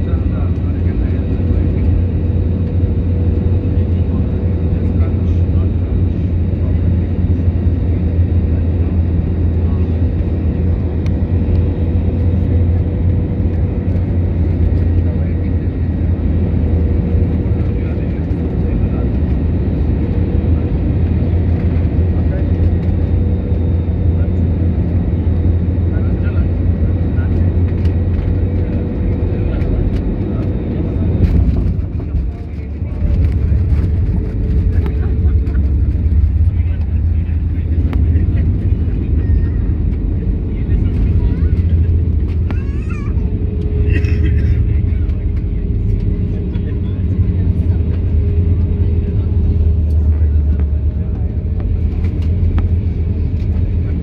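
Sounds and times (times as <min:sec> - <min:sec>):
constant cabin hum: 0:00.0 - 0:54.0
jet engine low rumble: 0:00.0 - 0:54.0.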